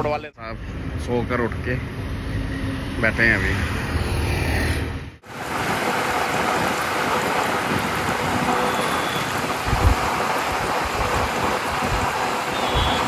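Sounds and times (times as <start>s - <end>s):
wind and road noise rushing: 0.0s - 13.0s
wind buffeting microphone: 5.3s - 13.0s.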